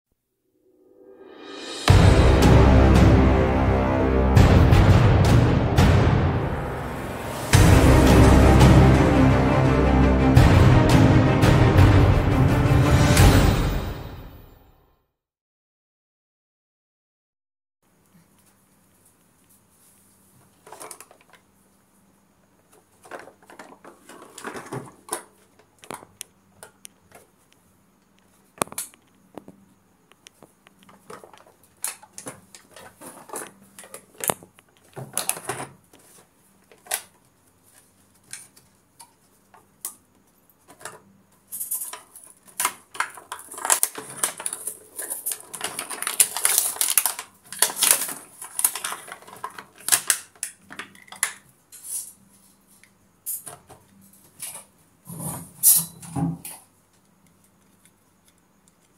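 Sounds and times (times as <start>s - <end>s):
plastic packaging crinkling: 41.6s - 51.4s.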